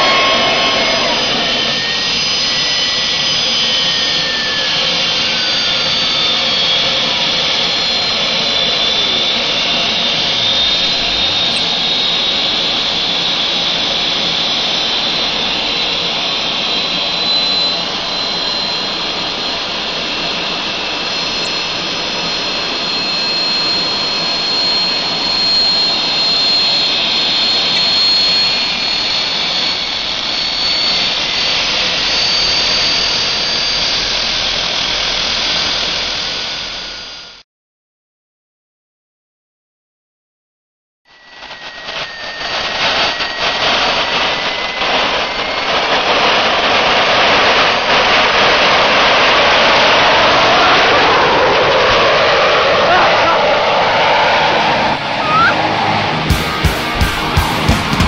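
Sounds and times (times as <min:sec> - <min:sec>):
lower tone sliding down: 0:00.0 - 0:37.2, 0:50.4 - 0:58.0
jet engine roar with whine: 0:00.0 - 0:37.4, 0:41.1 - 0:58.0.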